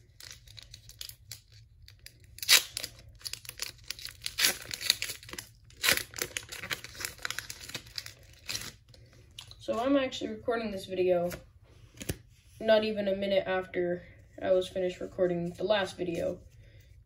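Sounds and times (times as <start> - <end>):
foil wrapper ripping: 0.0 - 9.0
foil wrapper crinkling: 0.0 - 9.2.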